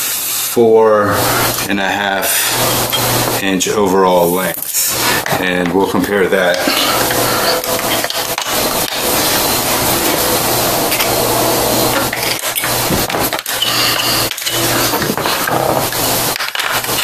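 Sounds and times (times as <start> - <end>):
steady low hum: 0.5 - 17.0
rubbing and rustling handling noise: 4.2 - 17.0.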